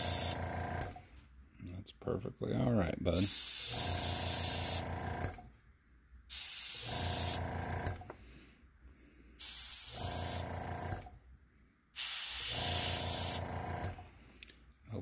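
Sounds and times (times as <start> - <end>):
airbrush spraying hiss: 0.0 - 0.4, 3.2 - 4.8, 6.3 - 7.4, 9.4 - 10.4, 12.0 - 13.4.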